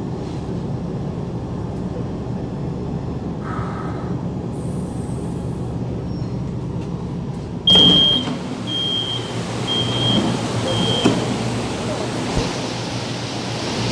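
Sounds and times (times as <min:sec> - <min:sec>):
low hum inside train car: 0:00.0 - 0:13.9
train doors opening: 0:06.2 - 0:13.0
door beeper short high beeps: 0:07.7 - 0:11.2.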